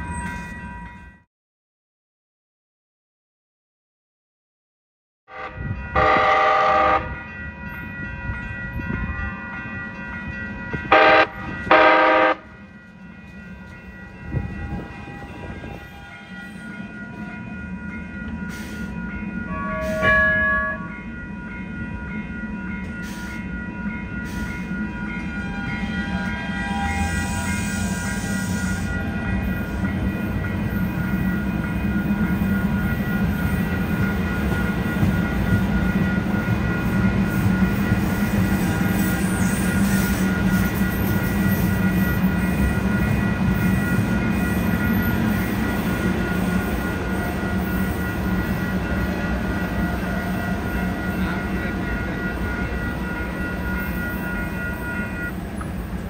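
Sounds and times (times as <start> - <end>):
train rumble and wheel noise: 0.0 - 1.3, 5.3 - 56.0
train horn blasts: 5.3 - 7.2, 10.9 - 12.6, 19.5 - 20.9, 25.3 - 29.7.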